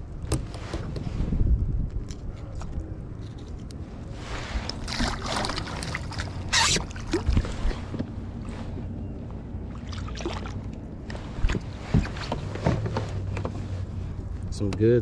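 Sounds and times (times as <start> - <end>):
fish splashing at water surface: 4.7 - 7.6.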